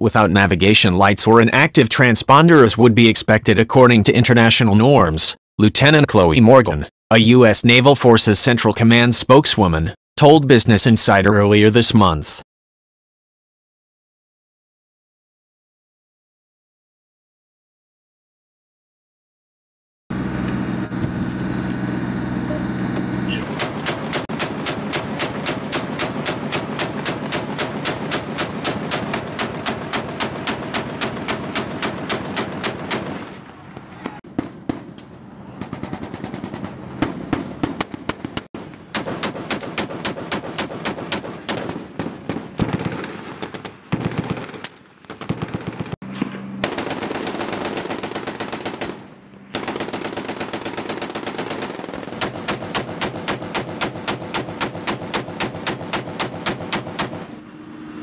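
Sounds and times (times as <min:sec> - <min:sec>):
chain gun firing heavy shots: 0:23.4 - 0:33.5, 0:34.3 - 0:57.4.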